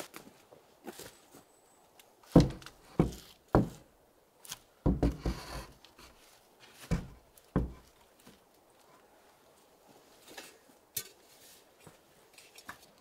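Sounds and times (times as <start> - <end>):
wooden ladder knocking on wall: 2.4 - 3.8, 4.8 - 5.6, 6.9 - 7.8.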